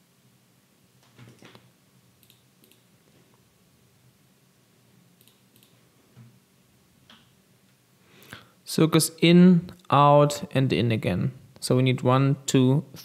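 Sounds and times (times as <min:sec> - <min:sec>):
computer mouse clicks: 0:01.0 - 0:02.9, 0:05.2 - 0:05.8.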